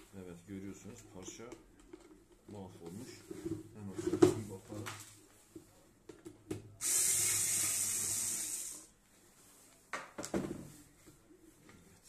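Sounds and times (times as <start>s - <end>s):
steady hiss: 6.8s - 9.0s.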